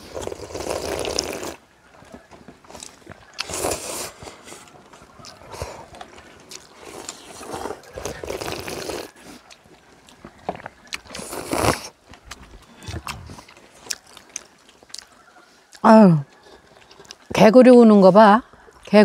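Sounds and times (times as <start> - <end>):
noodle slurping: 0.0 - 1.6, 2.7 - 9.7, 10.9 - 12.0
chewing: 0.0 - 17.4, 18.4 - 19.0.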